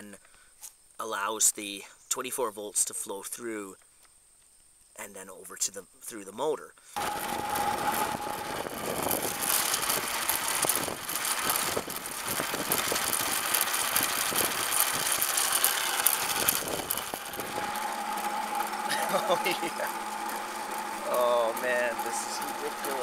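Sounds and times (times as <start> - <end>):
wind rush on microphone: 7.0 - 15.3, 16.2 - 17.8
high electric motor whine: 7.0 - 23.0
road rattle: 7.0 - 23.0.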